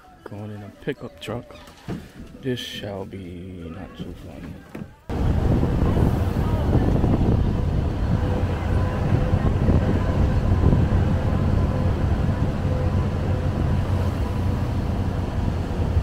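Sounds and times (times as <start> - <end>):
truck rumbling over cobblestones: 4.9 - 16.0.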